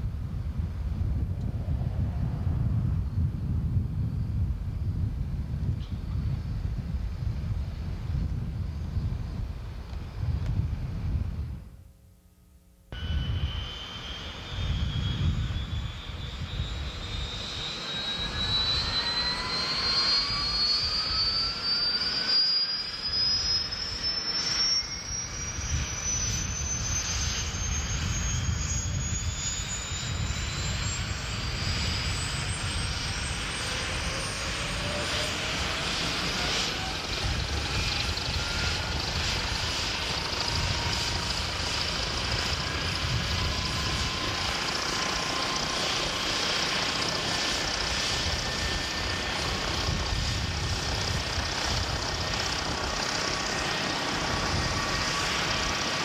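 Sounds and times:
helicopter turbine whine rising: 0:00.0 - 0:11.6, 0:13.0 - 0:56.0
helicopter rotor beating: 0:13.0 - 0:56.0.

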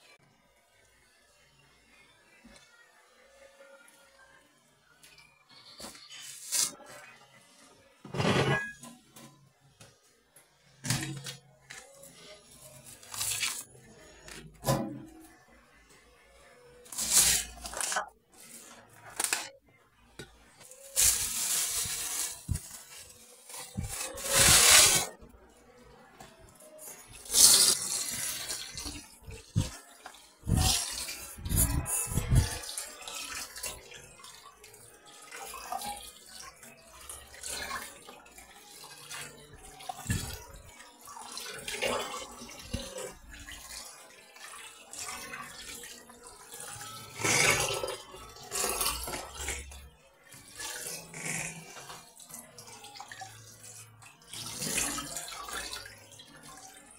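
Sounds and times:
water splashing and sloshing: 0:26.4 - 0:56.9.

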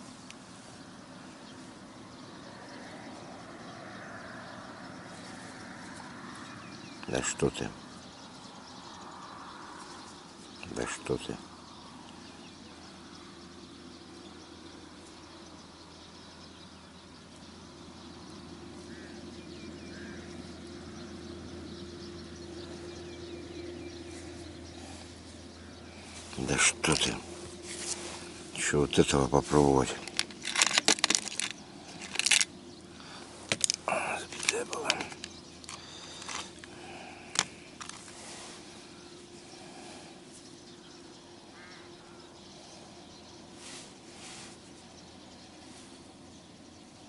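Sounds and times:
small bird chirping: 0:00.0 - 0:47.0
steady hum: 0:09.4 - 0:47.0
fishing tackle clicks and rattles: 0:30.0 - 0:32.6, 0:33.5 - 0:38.2.

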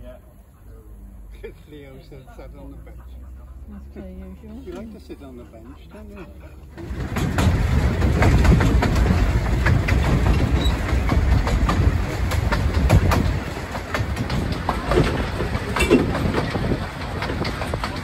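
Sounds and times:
railway carriage rumble: 0:00.0 - 0:18.0
wheels clicking on rails: 0:06.5 - 0:18.0.

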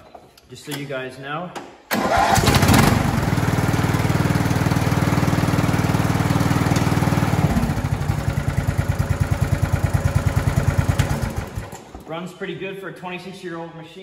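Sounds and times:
lawn tractor engine running: 0:01.9 - 0:12.0.

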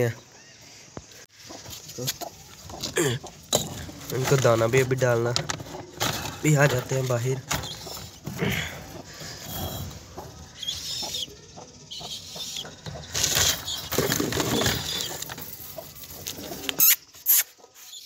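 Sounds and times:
pigeons cooing: 0:02.6 - 0:16.9
wings flapping: 0:13.0 - 0:16.9.

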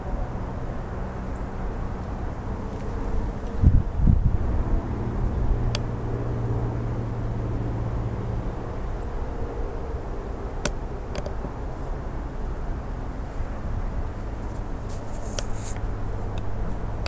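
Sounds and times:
low hum and rumble: 0:00.0 - 0:17.0.

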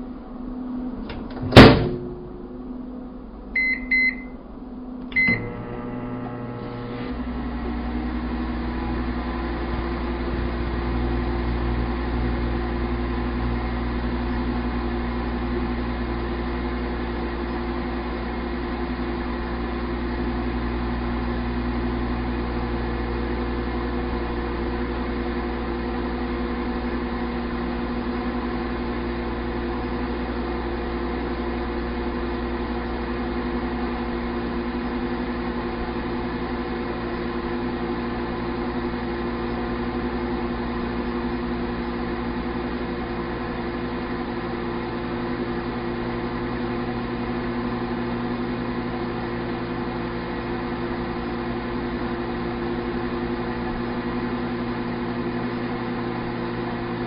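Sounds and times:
deeper hum: 0:00.0 - 0:57.0
microwave humming: 0:00.0 - 0:57.0
microwave door shutting: 0:01.0 - 0:02.3, 0:05.1 - 0:07.1
keypad beeps: 0:03.6 - 0:04.4, 0:05.2 - 0:05.4.

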